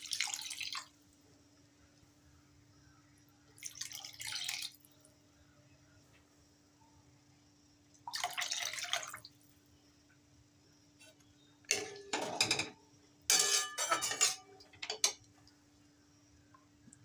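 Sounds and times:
metal spatula stirring and clinking: 0:11.7 - 0:12.7, 0:13.3 - 0:15.2.

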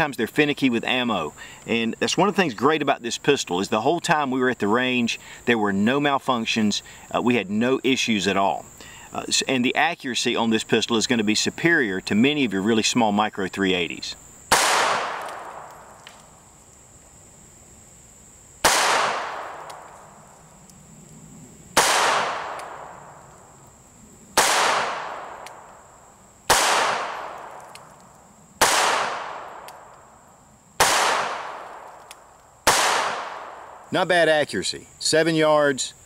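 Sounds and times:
pistol shots: 0:14.5 - 0:15.9, 0:18.6 - 0:19.9, 0:21.8 - 0:23.0, 0:24.4 - 0:25.7, 0:26.5 - 0:27.8, 0:28.6 - 0:29.9, 0:30.8 - 0:32.0, 0:32.6 - 0:33.8.

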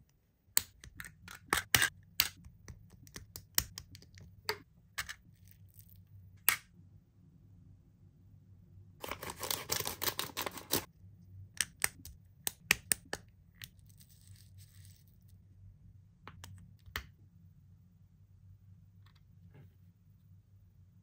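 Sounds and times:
packaging crinkling and tearing: 0:09.0 - 0:10.9.

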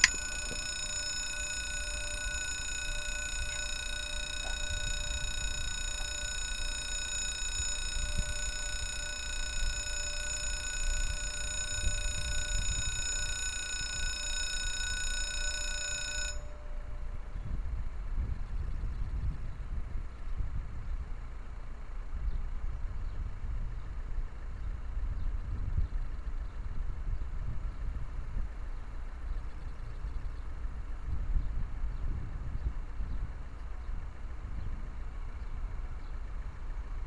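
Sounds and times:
level crossing warning tone: 0:00.0 - 0:17.9
low rumble of traffic: 0:00.0 - 0:37.0.

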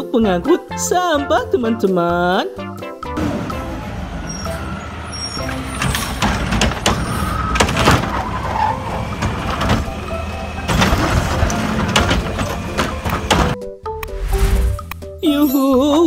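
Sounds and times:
garbage truck engine running: 0:03.1 - 0:13.6
trash cart clanks and knocks: 0:03.2 - 0:13.6.

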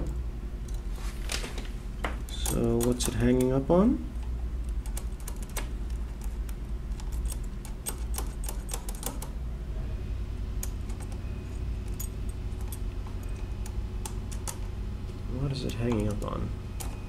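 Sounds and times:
metallic clicks of calculator mechanism: 0:02.2 - 0:03.6, 0:04.2 - 0:09.3, 0:15.6 - 0:17.0.

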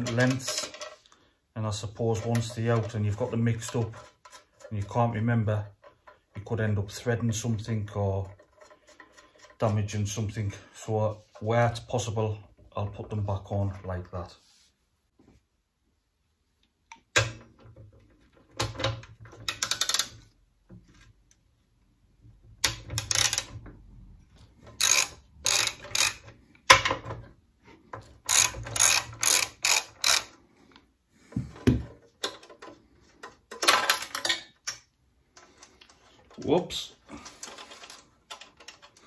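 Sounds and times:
ratchet wrench clicking: 0:22.6 - 0:23.5, 0:24.8 - 0:26.3, 0:28.3 - 0:30.4.

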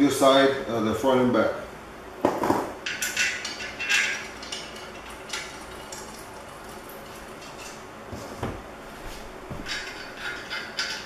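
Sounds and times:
screws clinking on metal: 0:09.7 - 0:11.0.

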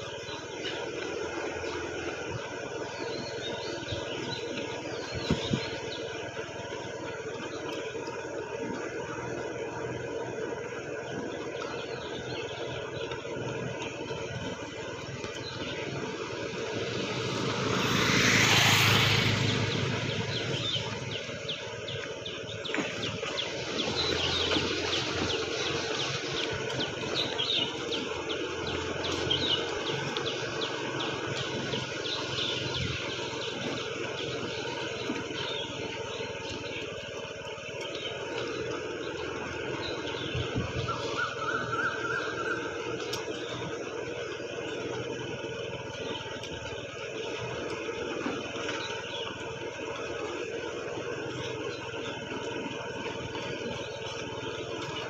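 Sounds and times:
steady engine hum: 0:00.0 - 0:55.0
running footsteps on asphalt: 0:10.5 - 0:17.9
vehicle passing by: 0:14.1 - 0:36.2.

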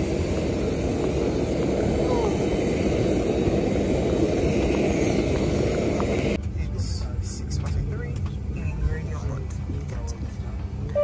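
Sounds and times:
wind on microphone: 0:00.0 - 0:06.4
jet engine droning: 0:00.0 - 0:11.0.

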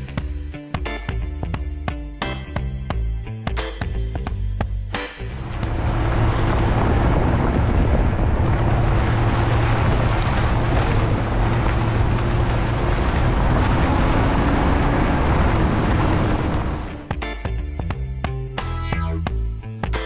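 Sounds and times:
music: 0:00.0 - 0:20.0
low engine drone: 0:05.2 - 0:18.0
tyres rushing on gravel: 0:05.4 - 0:17.1.

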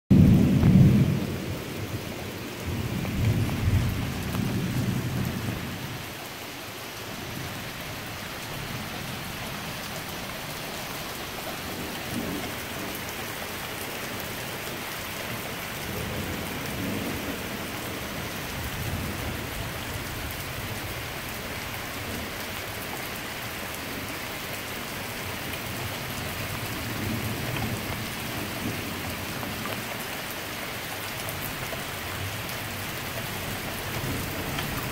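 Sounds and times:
thunder rumbling: 0:00.1 - 0:06.1, 0:07.2 - 0:21.2
rain pouring on pavement: 0:00.1 - 0:34.9.

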